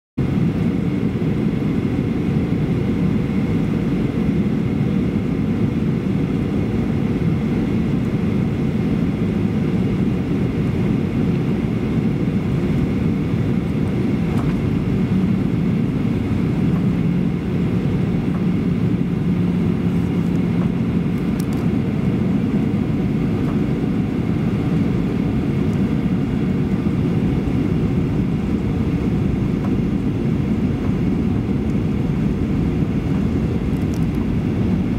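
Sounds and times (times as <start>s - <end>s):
airplane cabin rumble: 0.2s - 34.9s.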